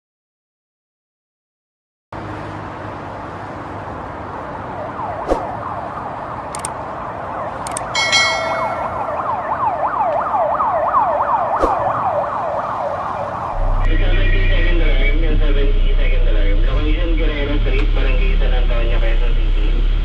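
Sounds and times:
engine and road rumble: 0:02.1 - 0:20.0
fire engine siren yelping: 0:04.4 - 0:13.9
sharp clicks: 0:06.5 - 0:06.8, 0:07.6 - 0:07.9.

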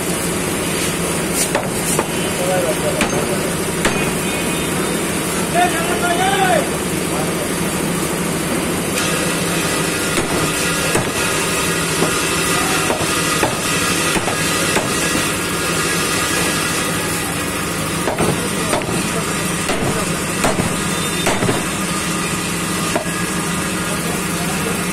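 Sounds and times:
steady background hum: 0:00.0 - 0:24.9
cleaver chopping on wooden block: 0:01.5 - 0:02.2, 0:03.0 - 0:04.2, 0:10.2 - 0:11.3, 0:12.0 - 0:15.3, 0:18.0 - 0:19.1, 0:19.7 - 0:21.7, 0:22.9 - 0:23.2.

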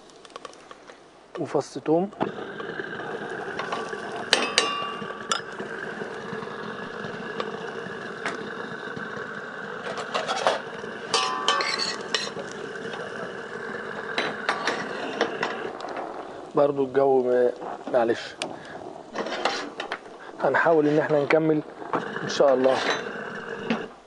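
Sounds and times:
oil hissing: 0:00.2 - 0:24.0.

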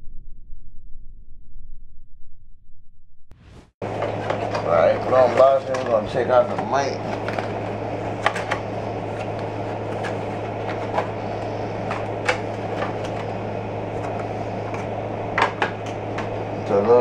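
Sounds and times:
low hum and hiss: 0:03.8 - 0:17.0.

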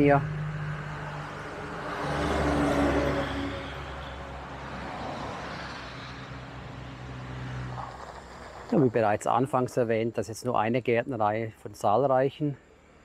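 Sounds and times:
road vehicle passing: 0:00.0 - 0:09.9
traffic drone: 0:00.0 - 0:13.0.

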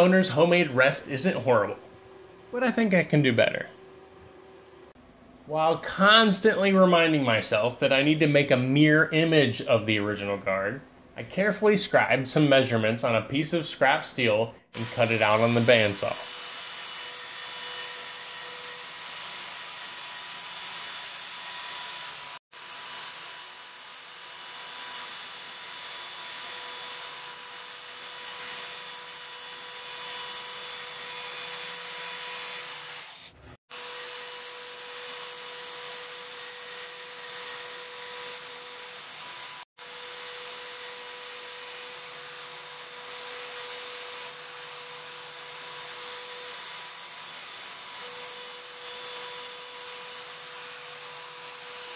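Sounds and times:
band saw cutting steel: 0:14.7 - 0:51.9.

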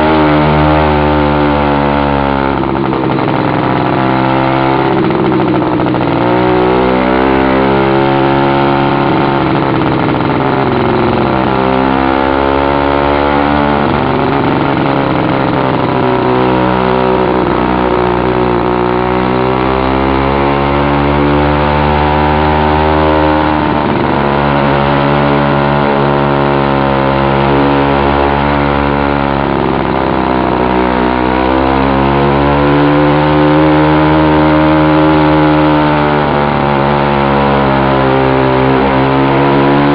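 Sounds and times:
loud two-stroke engine running: 0:00.0 - 0:39.9.

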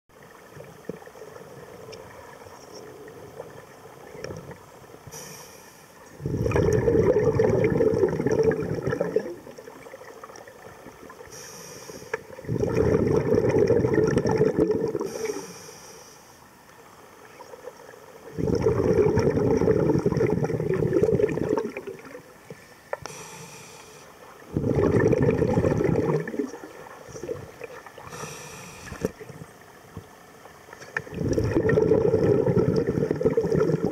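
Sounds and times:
regulator inhalation hiss: 0:05.1 - 0:06.0, 0:11.3 - 0:12.2, 0:15.0 - 0:16.4, 0:23.0 - 0:24.2, 0:28.1 - 0:29.1
exhaled bubbles underwater: 0:06.1 - 0:11.4, 0:12.1 - 0:15.4, 0:17.3 - 0:22.4, 0:24.3 - 0:29.6, 0:30.9 - 0:33.9.

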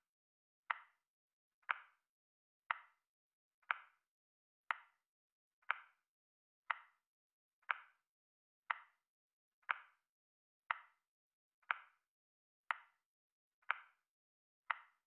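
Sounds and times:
timer ticking clicks: 0:00.7 - 0:01.0, 0:01.6 - 0:02.0, 0:02.7 - 0:03.0, 0:03.6 - 0:04.0, 0:04.7 - 0:05.0, 0:05.6 - 0:06.0, 0:06.7 - 0:07.0, 0:07.6 - 0:08.0, 0:08.7 - 0:09.0, 0:09.6 - 0:10.0, 0:10.7 - 0:11.0, 0:11.6 - 0:12.0, 0:13.6 - 0:14.0, 0:14.7 - 0:15.0.

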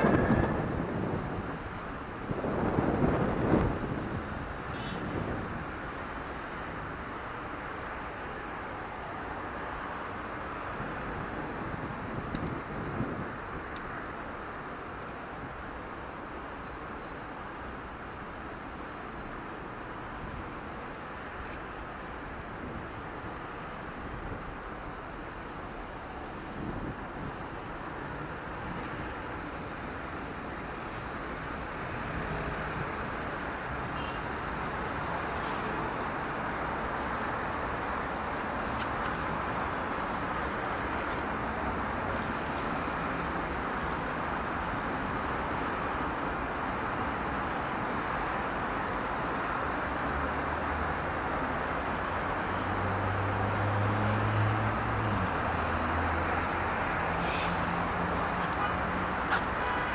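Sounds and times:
passing cars: 0:00.0 - 0:59.9.

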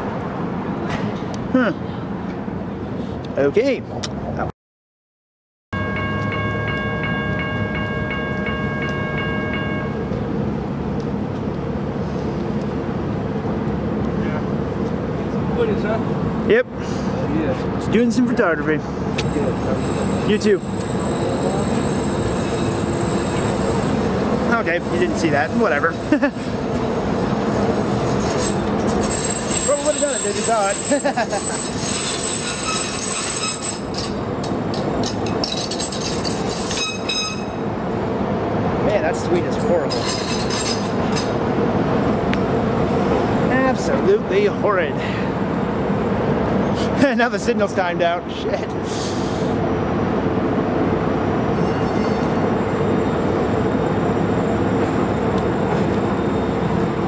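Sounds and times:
street noise: 0:00.0 - 0:04.5, 0:05.8 - 0:57.0
railroad crossing bell ringing: 0:05.8 - 0:10.2, 0:19.2 - 0:25.9, 0:29.0 - 0:37.8, 0:51.5 - 0:57.0
train rolling rumble: 0:05.8 - 0:57.0
high-pitched wheel squeal: 0:19.2 - 0:26.1, 0:27.6 - 0:37.7, 0:51.4 - 0:57.0.

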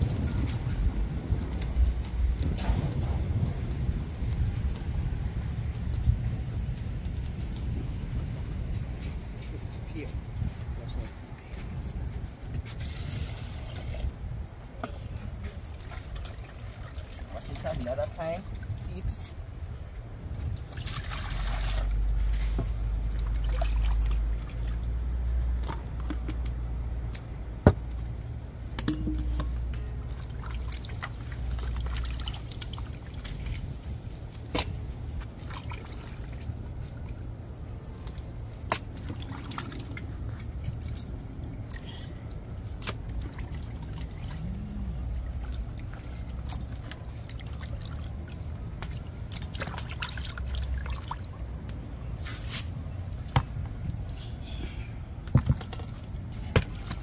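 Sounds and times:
steady low rumble: 0:00.0 - 0:21.2
water pouring and trickling: 0:12.5 - 0:27.3, 0:27.9 - 0:54.2.

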